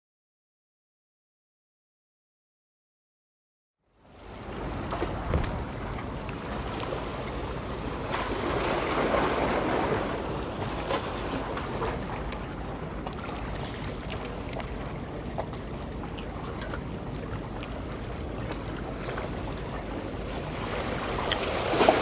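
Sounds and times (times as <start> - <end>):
waves washing against breakwater: 4.1 - 22.0
wind on microphone: 4.8 - 7.1.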